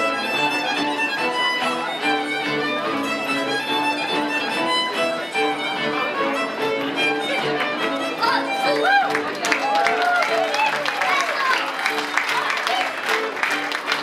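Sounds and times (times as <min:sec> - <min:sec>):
string bass: 0:00.0 - 0:10.4
fiddle playing dance tune: 0:00.0 - 0:14.0.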